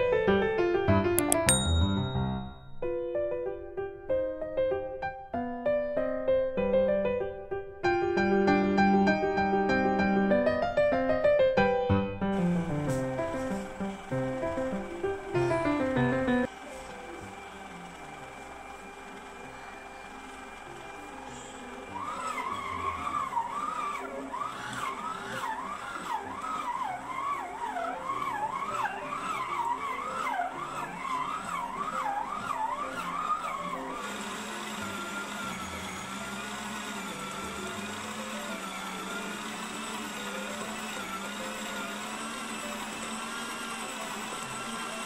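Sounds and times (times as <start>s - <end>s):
stand mixer motor whine: 11.6s - 45.0s.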